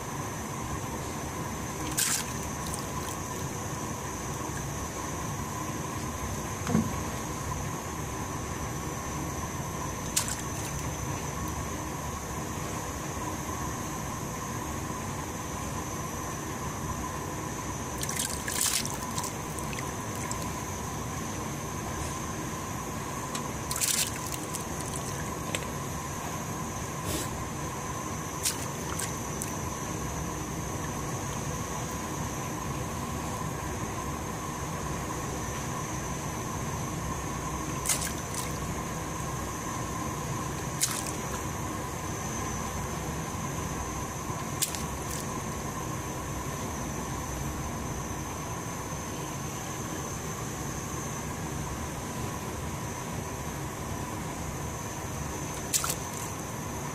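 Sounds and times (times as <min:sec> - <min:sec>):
kitchen hiss and hum: 0:00.0 - 0:56.9.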